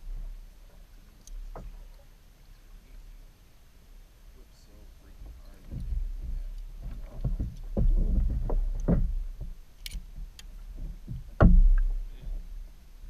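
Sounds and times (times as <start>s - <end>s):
steady low rumble: 0.0s - 13.0s
knocks against plastic kayak hull: 11.0s - 12.0s
loud thump: 11.1s - 12.4s.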